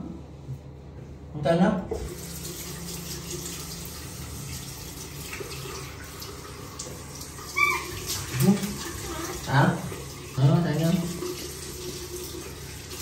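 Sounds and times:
tap running into washbasin: 0:01.9 - 0:13.0.

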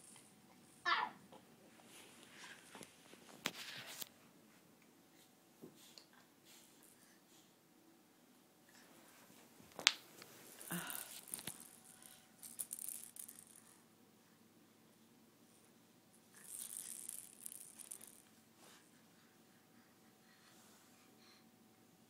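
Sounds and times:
plastic toys rattling: 0:10.6 - 0:13.8, 0:16.3 - 0:18.3.

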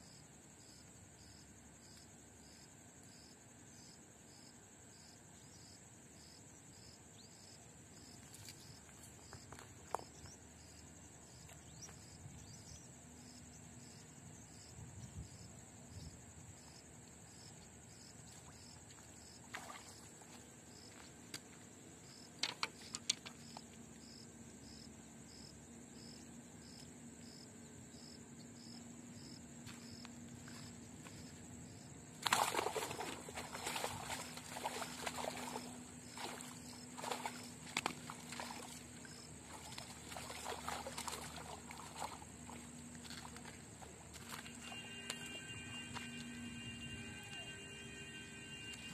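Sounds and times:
insects trilling: 0:00.0 - 0:48.9
rustling and crackling vegetation: 0:30.1 - 0:45.4.

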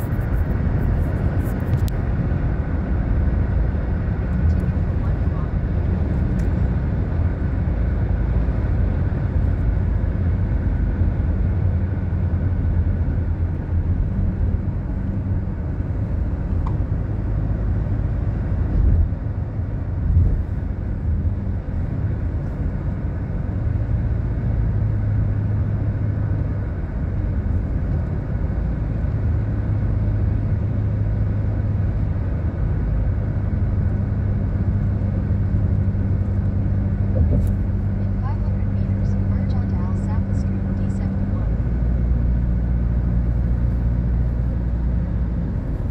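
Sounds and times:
road rumble and engine hum: 0:00.0 - 0:45.9.

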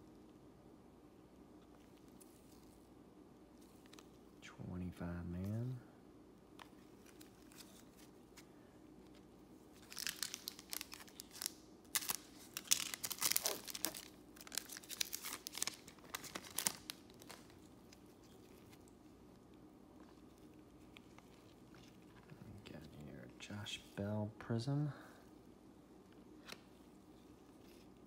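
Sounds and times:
glossy cards shuffling: 0:06.5 - 0:23.0.

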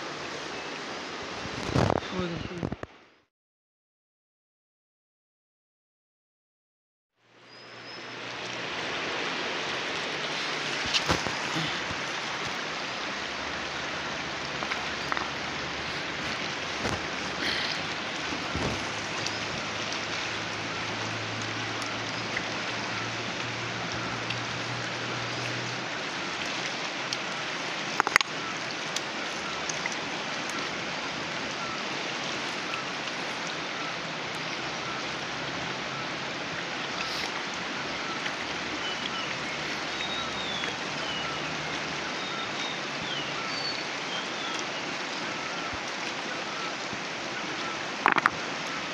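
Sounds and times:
river rushing over rocks: 0:07.8 - 0:48.9
sharp clicks and knocks: 0:48.0 - 0:48.4.

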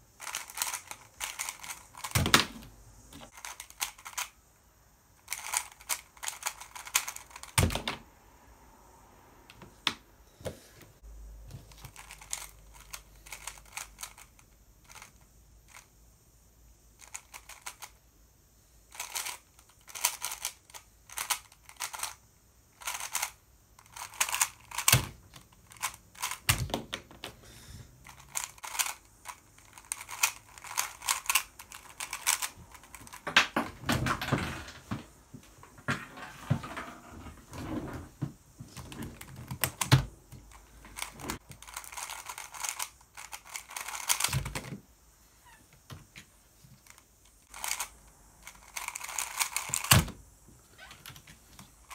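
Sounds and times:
plastic puzzle cube clicking: 0:00.2 - 0:02.6, 0:03.3 - 0:04.3, 0:05.2 - 0:07.9, 0:11.8 - 0:15.8, 0:17.0 - 0:17.9, 0:18.9 - 0:22.2, 0:22.8 - 0:27.0, 0:28.0 - 0:33.2, 0:41.0 - 0:44.7, 0:46.9 - 0:50.0.

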